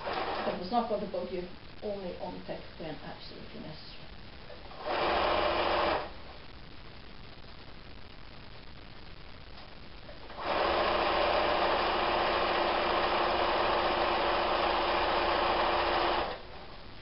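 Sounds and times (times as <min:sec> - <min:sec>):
electric sewing machine running: 0:00.0 - 0:00.6, 0:04.8 - 0:06.1, 0:10.4 - 0:16.5.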